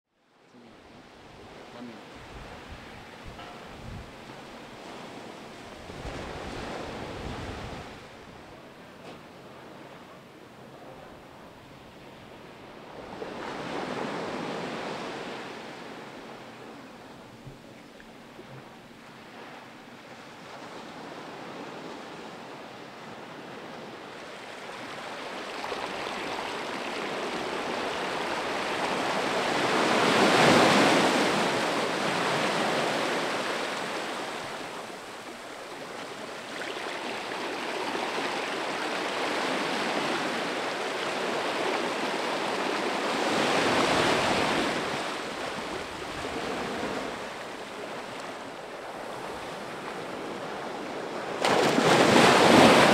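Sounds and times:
small waves breaking on sand: 0:00.6 - 0:52.9.

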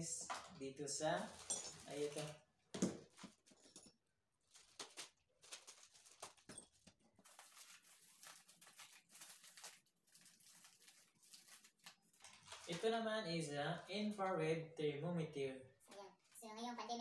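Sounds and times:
plastic packaging crinkling: 0:04.4 - 0:13.0.

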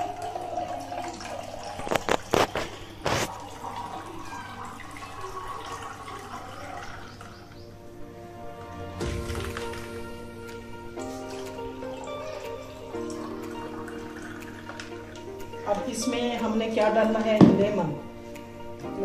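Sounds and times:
fizzy drink pouring into glass: 0:00.0 - 0:07.3.

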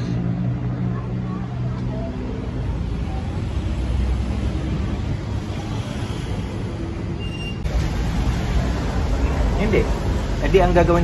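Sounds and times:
bright hiss: 0:07.6 - 0:11.0.

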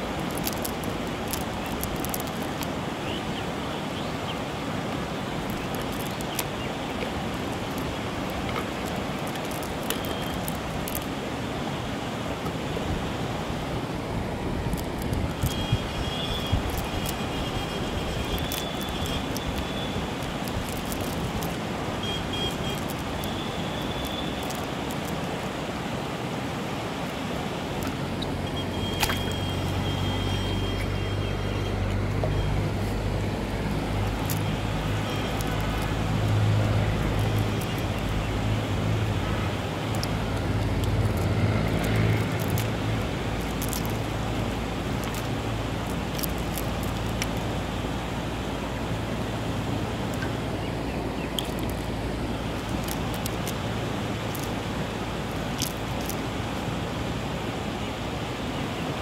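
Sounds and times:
faint clicks: 0:37.0 - 0:38.1, 0:39.8 - 0:44.2.

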